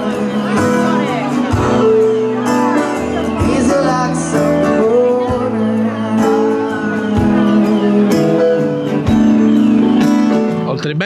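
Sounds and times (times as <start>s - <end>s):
keyboard chords: 0.0s - 11.0s
man singing: 3.3s - 9.0s.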